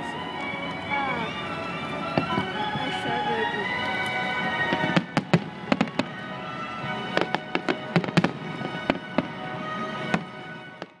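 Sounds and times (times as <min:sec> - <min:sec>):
background music: 0:00.0 - 0:11.0
fireworks bangs: 0:04.4 - 0:11.0.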